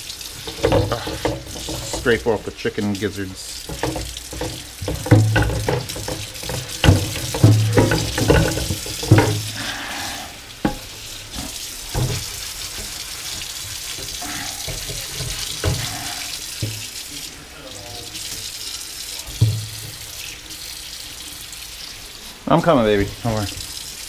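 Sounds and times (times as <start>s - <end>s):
tap running into sink: 0.0s - 2.5s, 3.6s - 9.6s, 10.6s - 17.0s, 19.2s - 20.2s
knocks and clatters: 0.4s - 2.4s, 3.7s - 9.6s, 14.7s - 16.0s, 19.3s - 20.0s.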